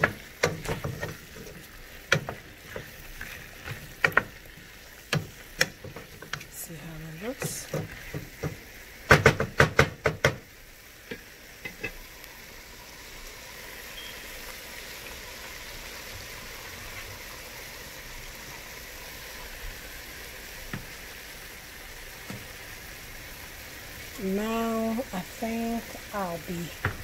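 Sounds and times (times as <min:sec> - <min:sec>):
wooden spatula knocking on pot: 0:00.0 - 0:04.5, 0:05.1 - 0:06.6, 0:07.2 - 0:10.5
vegetables sizzling in oil: 0:00.0 - 0:27.0.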